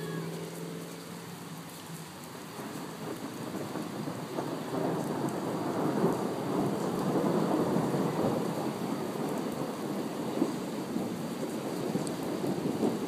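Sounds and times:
steady rain: 0.0 - 13.0
rolling thunder: 2.6 - 13.0.

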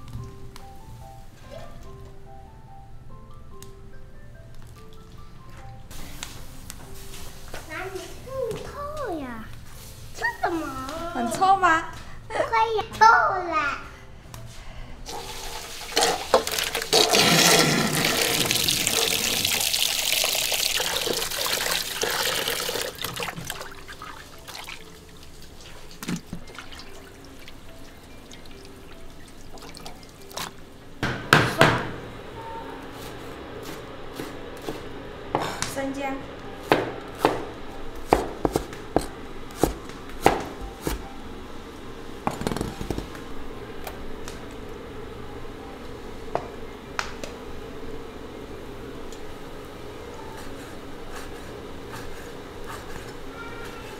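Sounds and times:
running water splashing: 15.1 - 30.8
water trickles and drips: 18.0 - 30.6.

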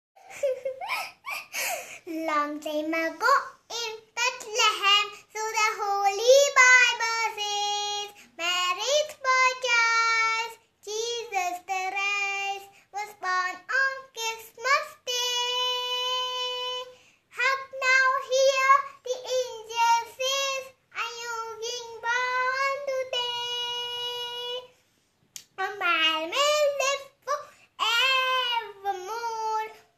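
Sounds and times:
girl singing unaccompanied: 1.8 - 29.9.

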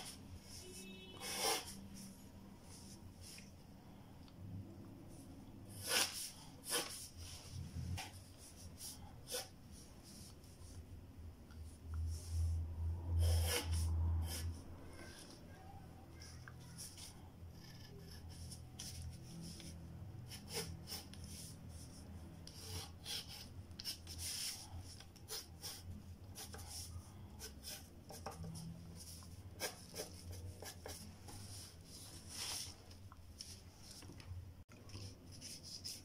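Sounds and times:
pencil scratching on paper: 0.0 - 2.1, 5.7 - 7.2, 13.2 - 15.3, 16.2 - 32.6, 35.4 - 36.0.

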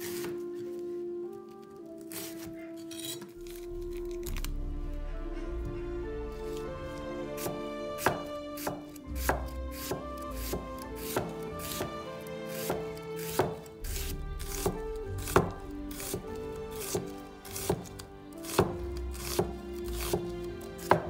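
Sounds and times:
cleaver chopping on wooden board: 7.4 - 12.0, 12.6 - 16.2, 16.8 - 21.0.

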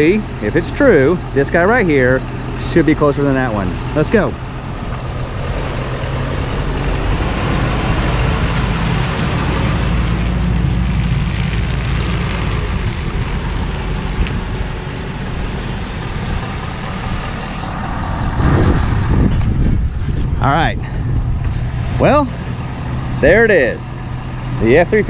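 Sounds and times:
pickup truck engine running: 0.0 - 25.0.

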